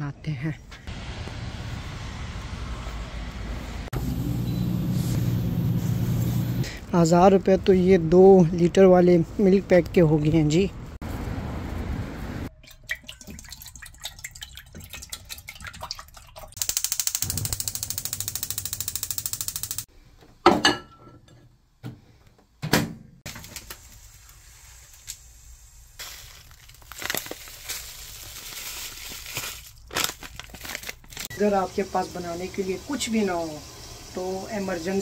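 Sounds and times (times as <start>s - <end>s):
scattered clicks: 16.6s - 19.9s
water running: 31.4s - 35.0s.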